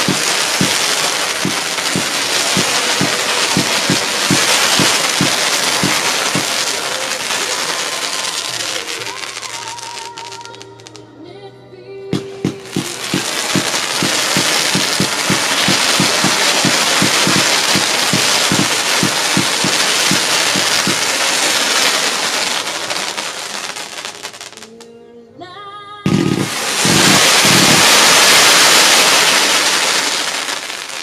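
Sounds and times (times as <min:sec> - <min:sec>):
firework launch thumps: 0:00.0 - 0:06.8, 0:12.1 - 0:22.2, 0:26.1 - 0:29.8
hissing of burning fireworks: 0:00.0 - 0:11.1, 0:12.1 - 0:24.9, 0:26.1 - 0:31.0.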